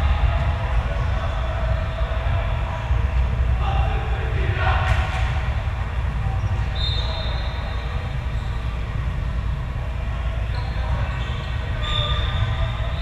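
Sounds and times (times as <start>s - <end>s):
low rumble of sports hall: 0.0s - 13.0s
sneakers squeaking on floor: 6.6s - 8.8s, 10.5s - 13.0s.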